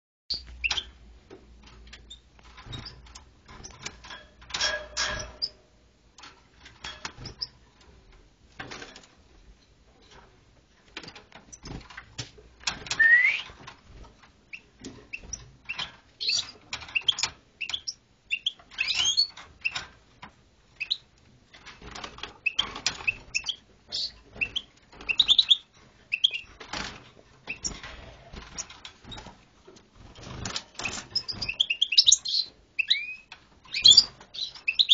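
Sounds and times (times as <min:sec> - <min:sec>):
bird chirping: 0:13.0 - 0:13.5, 0:14.5 - 0:19.8, 0:20.8 - 0:21.1, 0:22.4 - 0:26.5, 0:30.8 - 0:34.9.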